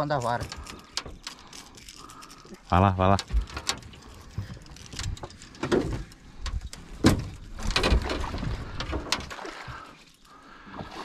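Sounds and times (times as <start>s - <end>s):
dense rattle: 0.0s - 9.3s
knocks and bumps on boat: 3.2s - 9.8s.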